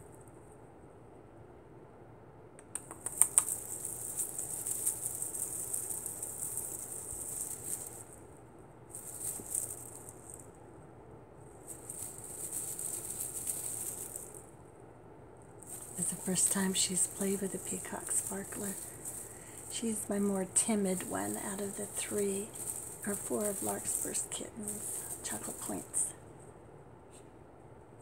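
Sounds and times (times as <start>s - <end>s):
sharp clicks: 2.6s - 3.6s
cat wand toy rattling rustle: 3.0s - 8.3s, 8.9s - 10.6s, 11.5s - 14.6s, 15.5s - 26.4s.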